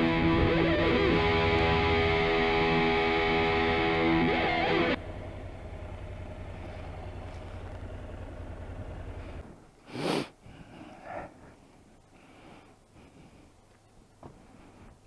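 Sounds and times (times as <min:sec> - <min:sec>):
low engine rumble: 0:00.0 - 0:09.8
puff of breath through nose: 0:09.8 - 0:11.3.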